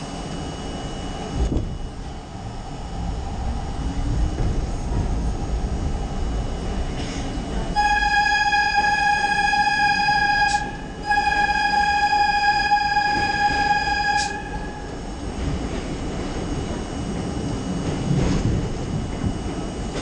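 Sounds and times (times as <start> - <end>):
subway train running in tunnel: 0.0 - 20.0
high-pitched tone: 7.8 - 15.0.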